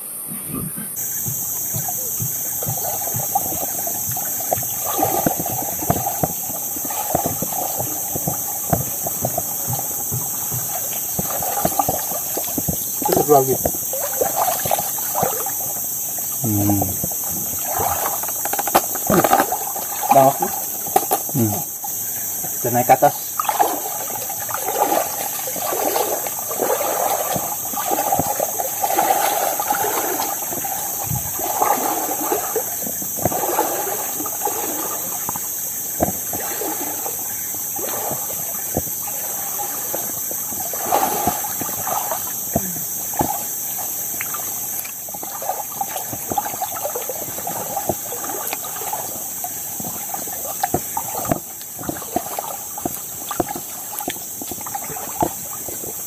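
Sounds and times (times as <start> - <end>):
high insect drone: 0.0 - 56.0
water sloshing with wading steps: 0.2 - 56.0.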